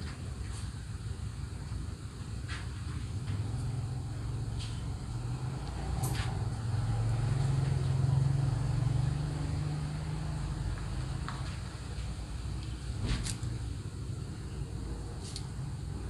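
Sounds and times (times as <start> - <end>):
passing vehicle engine hum: 3.2 - 16.0.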